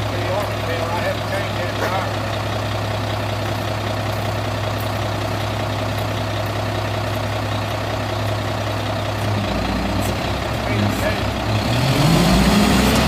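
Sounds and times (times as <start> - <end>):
diesel truck engine idling: 0.0 - 13.0.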